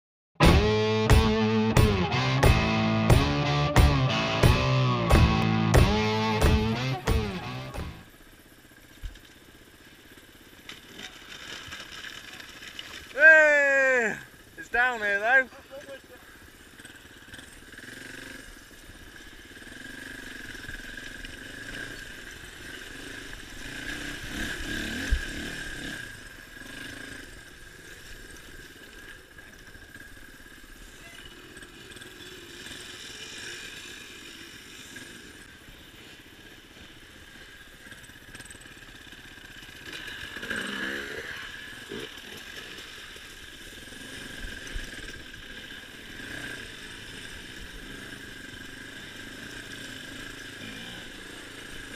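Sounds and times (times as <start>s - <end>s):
sharp knock: 0.4s - 8.0s
dirt bike engine running: 0.4s - 51.9s.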